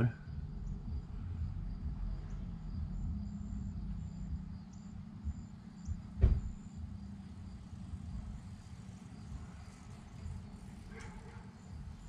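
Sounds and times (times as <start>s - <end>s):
low steady rumble: 0.0s - 12.0s
sharp knock: 6.2s - 6.6s.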